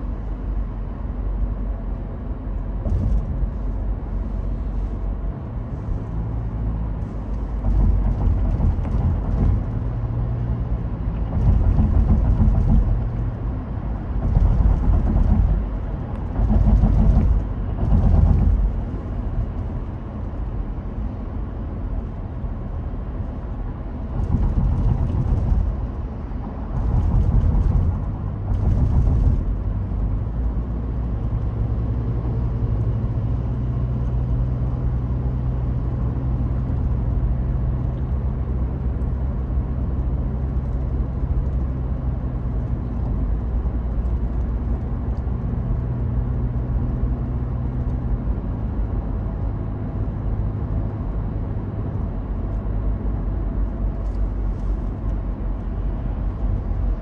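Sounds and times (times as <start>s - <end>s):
hiss of tyre and traffic noise: 0.0s - 48.6s, 49.2s - 57.0s
car engine and road rumble: 0.0s - 57.0s.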